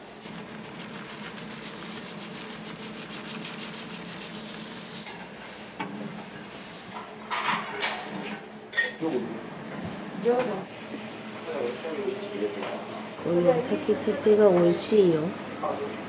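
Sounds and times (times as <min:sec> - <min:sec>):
stick stirring in metal pot: 0:00.0 - 0:05.2.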